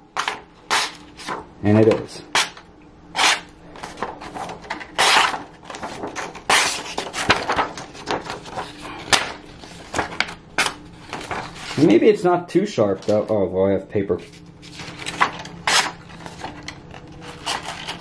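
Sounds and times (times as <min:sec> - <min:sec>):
paper rustling: 0:00.2 - 0:01.4, 0:03.8 - 0:12.0, 0:14.2 - 0:18.0
knife slicing paper: 0:15.6 - 0:16.0.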